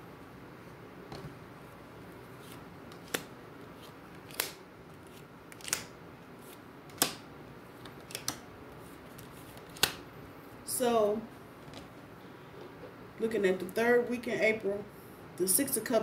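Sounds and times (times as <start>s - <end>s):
cards snapping on a table: 2.9s - 3.3s, 4.2s - 4.6s, 5.5s - 6.0s, 6.9s - 7.2s, 7.8s - 8.4s, 9.2s - 10.0s.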